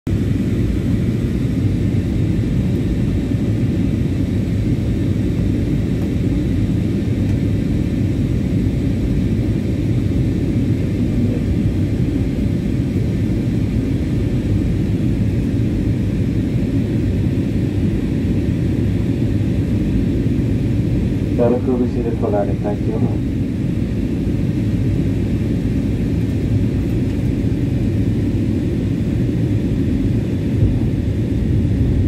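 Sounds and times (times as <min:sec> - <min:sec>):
jet engines rumbling: 0:00.1 - 0:32.0.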